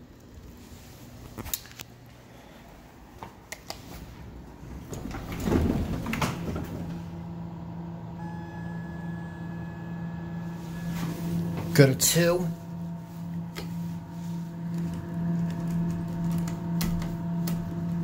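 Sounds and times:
steady electrical hum: 0.0 - 18.0
elevator doors sliding open: 3.9 - 18.0.

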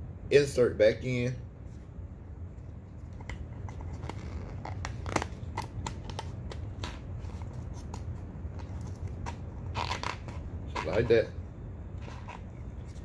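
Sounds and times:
rubber tire scraping and rubbing: 6.8 - 11.2, 12.0 - 13.0.

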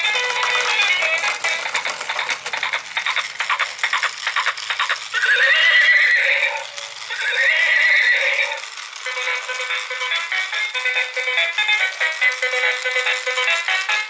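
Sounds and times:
toy clicking rattle: 0.0 - 14.0
recorded horse whinnies: 5.2 - 8.6.

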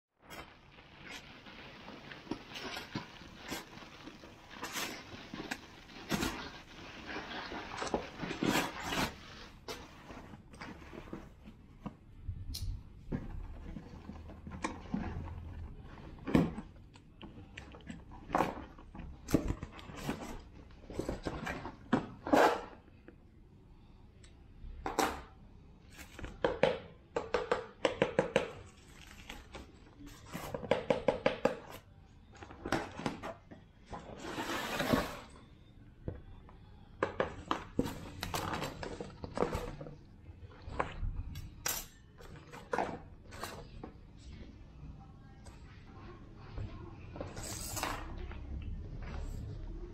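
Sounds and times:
plastic and cardboard rustling: 0.2 - 12.2, 13.0 - 22.9, 28.6 - 30.8, 31.7 - 35.4, 37.0 - 41.3, 42.2 - 44.4.

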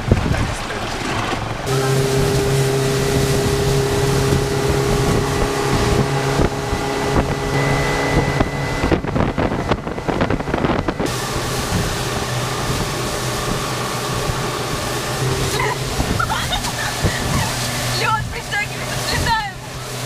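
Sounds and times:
motorboat engine humming: 0.0 - 20.0
wind noise on microphone: 0.0 - 20.0.

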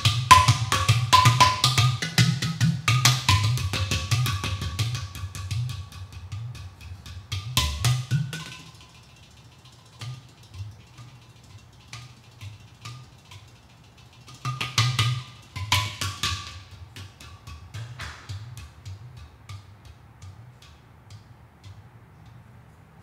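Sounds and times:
hand drumming on clay pot drums: 0.0 - 22.2.

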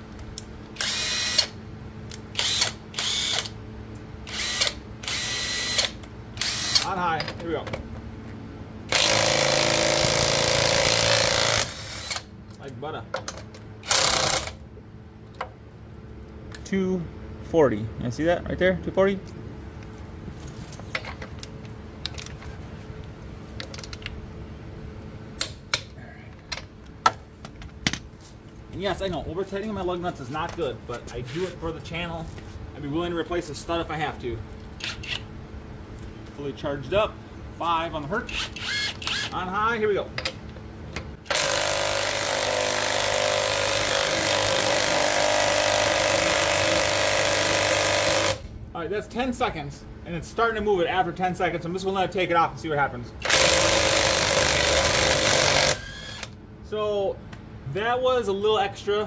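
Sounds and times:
steady low hum: 0.0 - 59.0
torque wrench clicking: 4.3 - 7.0
impact wrench hammering: 41.3 - 48.4, 53.2 - 56.2.

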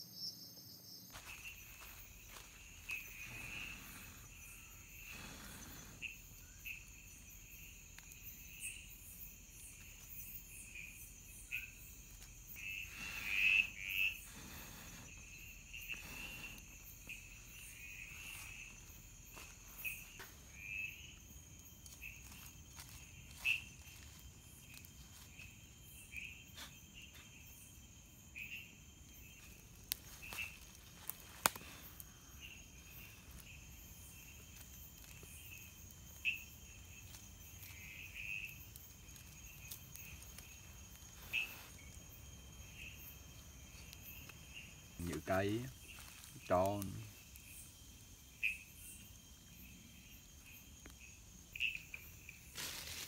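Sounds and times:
crickets trilling: 0.0 - 53.0
insect chirps: 0.0 - 53.0.

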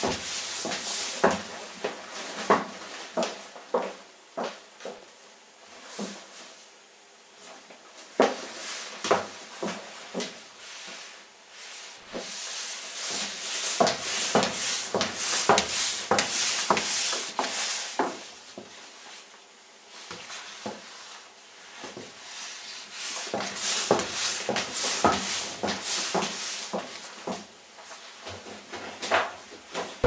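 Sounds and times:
footsteps: 0.0 - 5.1, 12.0 - 19.2, 23.0 - 30.0.

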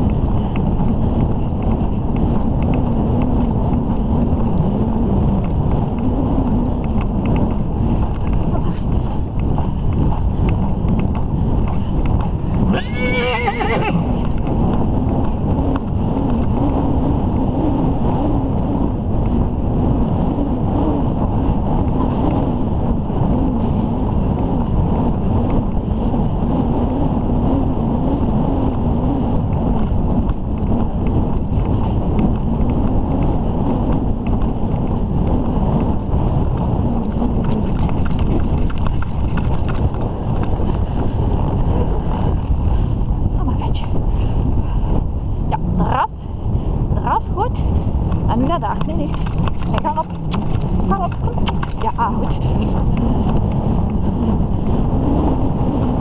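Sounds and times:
wind rumble on microphone: 0.0 - 56.0
horse whinnying: 12.7 - 14.2.

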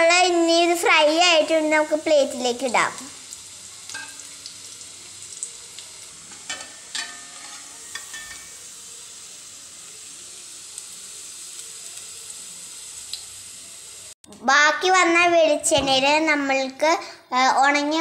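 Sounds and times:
oil sizzling in frying pan: 0.0 - 14.2
metal spatula clinking: 3.9 - 4.3, 6.3 - 8.6.

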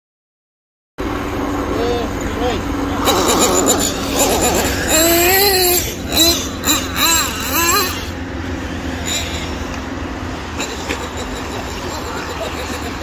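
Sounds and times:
model car nitro engine droning: 1.0 - 13.0.

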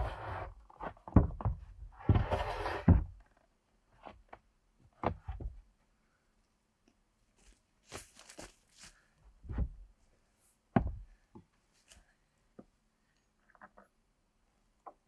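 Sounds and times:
footsteps on dry forest litter: 7.4 - 9.1.

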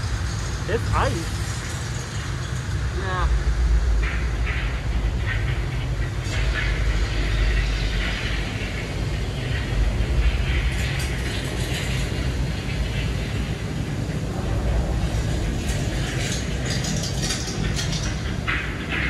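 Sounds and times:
ride mechanism rumbling and ratcheting: 4.1 - 19.0.

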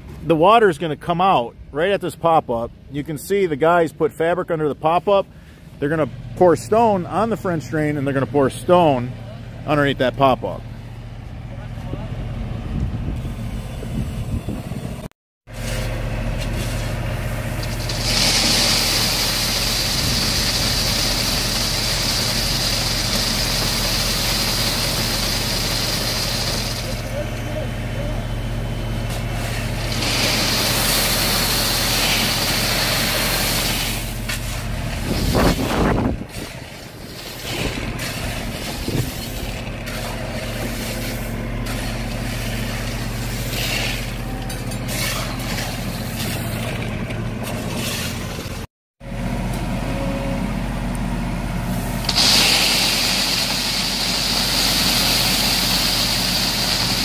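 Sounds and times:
gravel sliding out of hopper: 15.5 - 27.1, 29.2 - 46.8, 51.7 - 57.0
small engine running: 17.2 - 50.9, 51.7 - 57.0
loud clatter: 29.8 - 42.0, 52.0 - 57.0.

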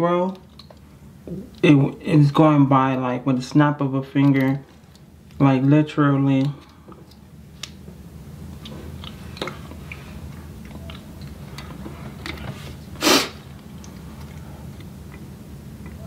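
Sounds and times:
steady low hum: 0.0 - 16.0
short loud hissing burst: 13.0 - 13.4.

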